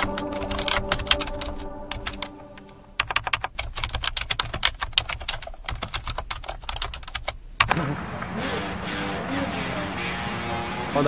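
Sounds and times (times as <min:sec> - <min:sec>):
music: 0:00.0 - 0:02.8, 0:08.4 - 0:11.0
keyboard typing: 0:00.0 - 0:07.8.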